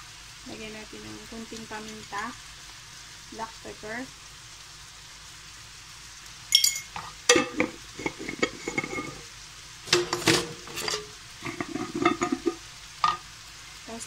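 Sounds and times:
faint sizzle: 0.0 - 14.0
utensil scraping a wok: 6.9 - 13.2.

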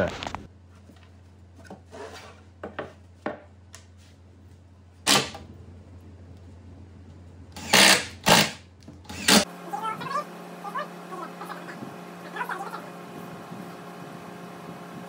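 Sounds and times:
steady low hum: 0.0 - 15.0
cordless drill driving screws: 7.6 - 9.4.

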